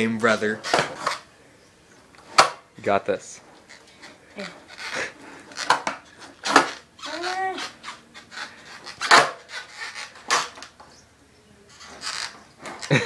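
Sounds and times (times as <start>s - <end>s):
skateboard clacking on concrete: 0.3s - 1.2s, 2.2s - 2.6s, 3.7s - 10.9s.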